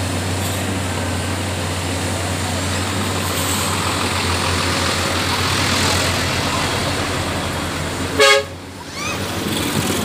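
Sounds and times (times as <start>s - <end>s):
truck diesel engine running: 0.0s - 10.0s.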